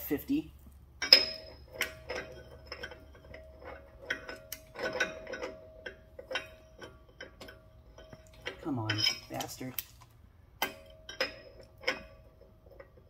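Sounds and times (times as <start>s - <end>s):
faint steady ring: 0.8s - 9.7s, 10.5s - 13.0s.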